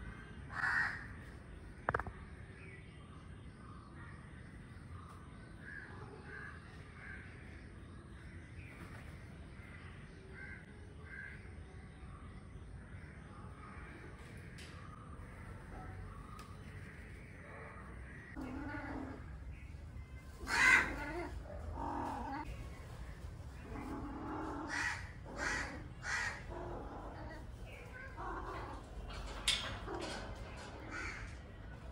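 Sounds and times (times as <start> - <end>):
cats yowling: 18.3 - 19.5, 20.3 - 22.5, 23.6 - 31.5.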